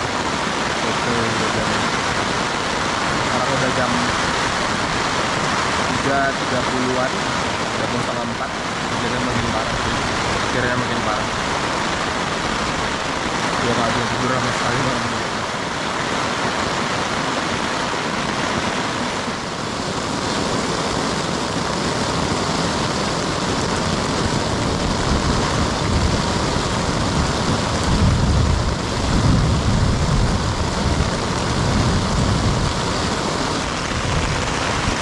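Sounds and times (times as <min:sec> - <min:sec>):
steady rain: 0:00.0 - 0:35.0
thunder rumbling: 0:20.5 - 0:35.0.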